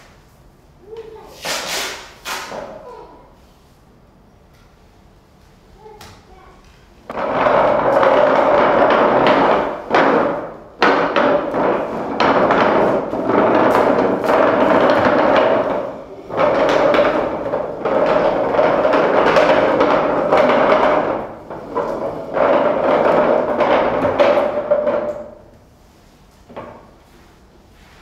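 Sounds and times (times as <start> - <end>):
scraping rattling percussion: 7.0 - 25.5.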